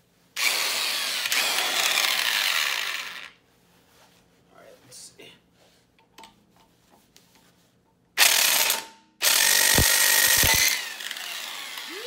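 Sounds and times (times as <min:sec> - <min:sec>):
electric impact wrench hammering: 0:00.4 - 0:03.3, 0:08.2 - 0:12.0.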